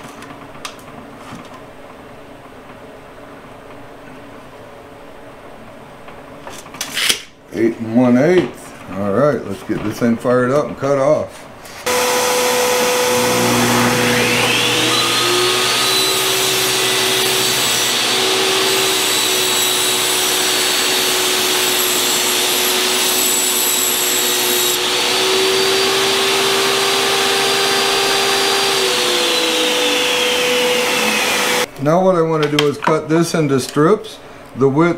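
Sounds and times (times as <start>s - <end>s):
table saw cutting plywood: 11.8s - 31.7s
vacuum drone: 11.9s - 19.1s.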